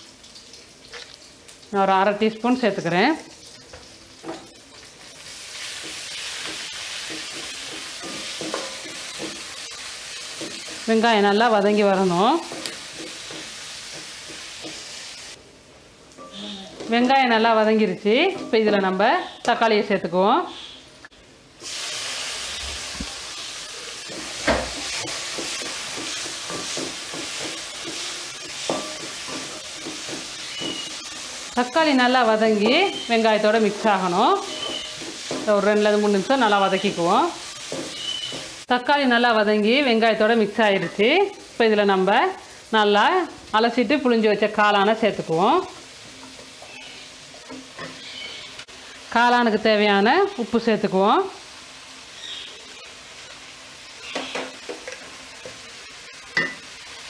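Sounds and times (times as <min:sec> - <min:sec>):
onions sizzling in hot oil: 0:00.0 - 0:57.0
spatula stirring and scraping: 0:05.6 - 0:11.0, 0:22.7 - 0:31.8, 0:32.8 - 0:36.1
spatula knocking on pan: 0:05.8 - 0:09.5, 0:10.3 - 0:10.9, 0:12.4 - 0:14.8, 0:24.1 - 0:31.1, 0:34.4 - 0:35.6, 0:37.6 - 0:38.6
metal spatula scraping pan: 0:32.7 - 0:35.6.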